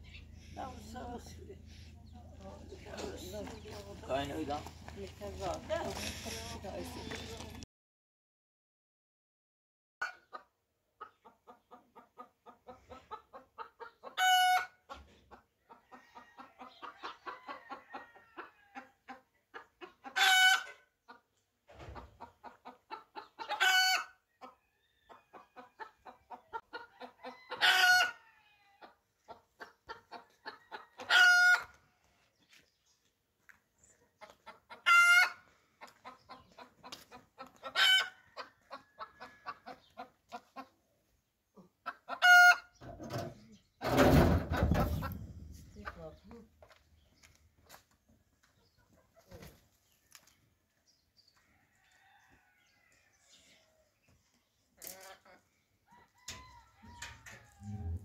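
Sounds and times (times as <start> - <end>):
chicken clucking: 10.0 - 32.7, 33.8 - 46.4, 48.4 - 53.0, 53.6 - 58.0
chicken squawking: 34.7 - 35.4, 41.8 - 42.7.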